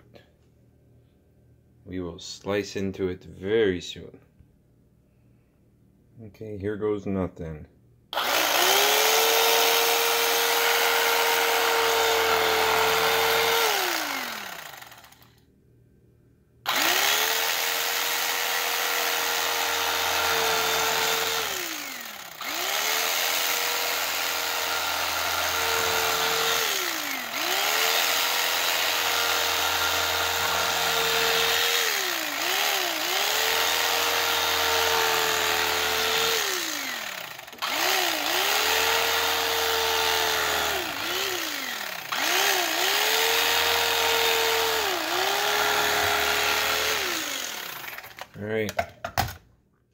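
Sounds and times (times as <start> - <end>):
electric carving knife whining: 8.2 - 15.4, 16.7 - 48.2.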